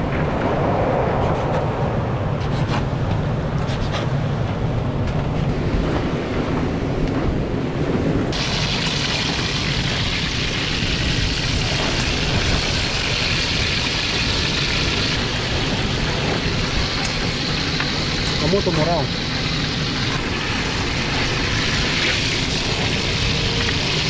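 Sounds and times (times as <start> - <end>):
wind rumbling on microphone: 0.0 - 24.0
food sizzling in hot oil: 8.3 - 24.0.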